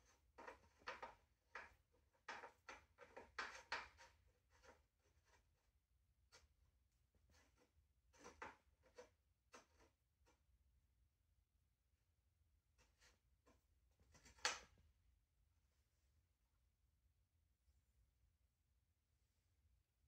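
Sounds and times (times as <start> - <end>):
faint rubbing and scraping: 0.0 - 10.4.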